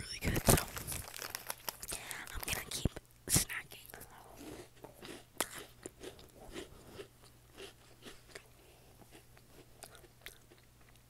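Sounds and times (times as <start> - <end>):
person chewing crunchy snack: 4.2 - 11.0.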